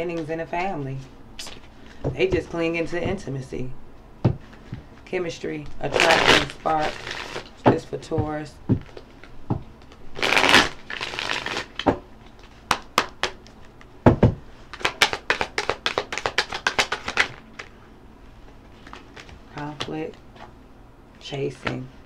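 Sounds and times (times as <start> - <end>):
cards shuffling: 5.7 - 7.6, 8.4 - 13.9, 14.6 - 17.7, 18.7 - 20.5
deck knocking: 7.7 - 9.7, 14.0 - 14.4.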